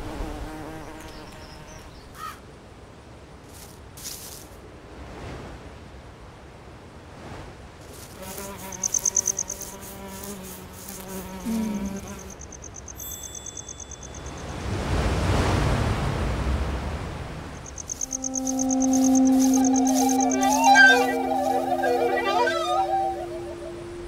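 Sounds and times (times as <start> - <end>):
insects trilling: 7.9 - 14.6, 17.6 - 24.0
low humming tone: 17.2 - 24.0.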